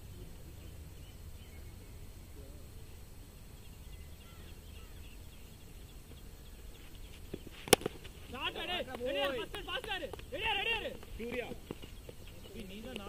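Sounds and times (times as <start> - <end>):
faint high chirps: 0.0 - 8.5.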